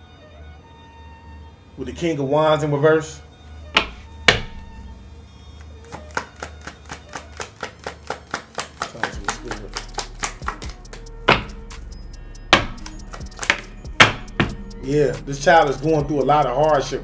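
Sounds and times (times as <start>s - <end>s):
knocks: 3.8s - 4.7s, 10.4s - 11.8s, 12.5s - 14.7s
cards being shuffled: 5.6s - 11.6s, 12.6s - 13.7s.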